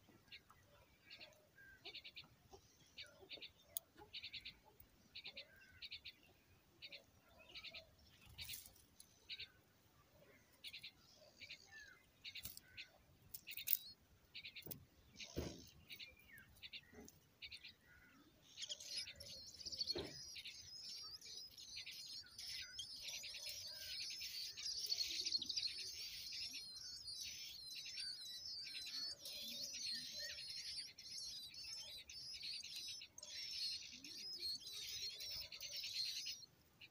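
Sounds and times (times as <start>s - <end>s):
nestlings begging chirps: 10.5s - 36.9s.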